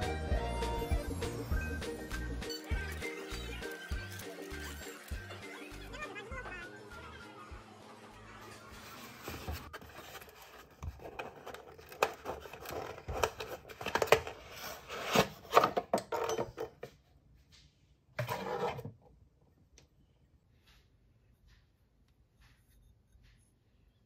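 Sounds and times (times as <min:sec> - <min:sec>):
wrapping paper rustling: 0:08.8 - 0:15.5
cardboard flaps scraping: 0:08.9 - 0:15.7.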